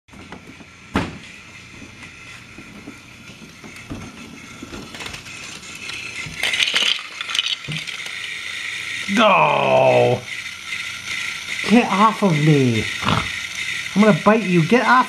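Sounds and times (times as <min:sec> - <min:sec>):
toy train motor whirring: 0:00.2 - 0:15.0
plastic blocks clattering: 0:06.3 - 0:08.4.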